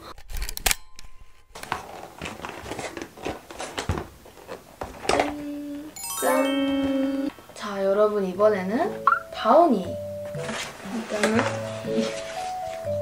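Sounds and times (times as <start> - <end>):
cardboard box rustling: 1.6 - 5.0, 10.4 - 12.8.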